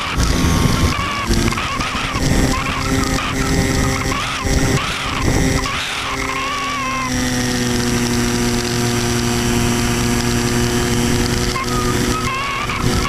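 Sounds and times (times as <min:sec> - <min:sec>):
wind rush on microphone: 0:00.0 - 0:05.9
model plane motor humming: 0:00.0 - 0:13.0
wavering high whine: 0:00.0 - 0:13.0.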